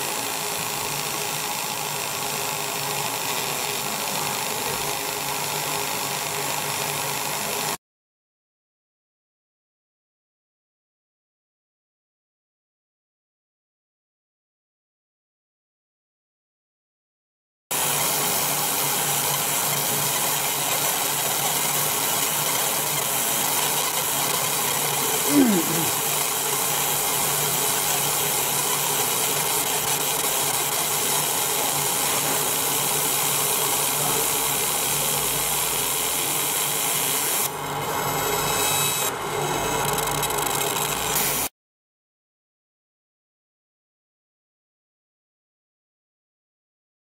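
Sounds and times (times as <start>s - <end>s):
laser engraving hissing buzz: 0.0s - 7.8s, 17.8s - 41.5s.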